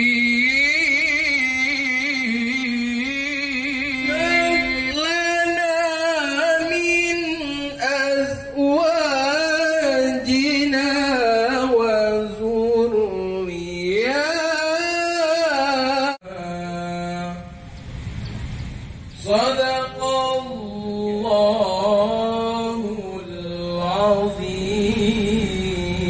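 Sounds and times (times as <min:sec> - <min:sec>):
person chanting melodic recitation: 0:00.0 - 0:17.8, 0:19.1 - 0:26.0.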